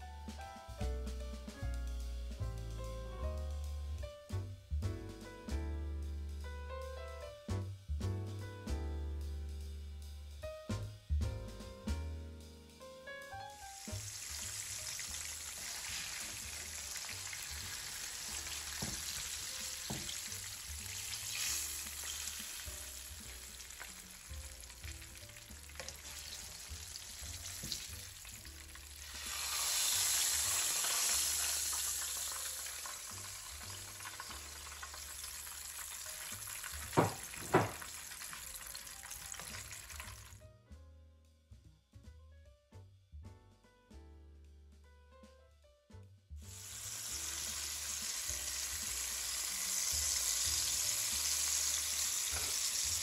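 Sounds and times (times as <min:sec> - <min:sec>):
food sizzling in a pot: 0:13.5 - 0:40.4, 0:46.4 - 0:53.0
sharp knocks: 0:37.0 - 0:37.8.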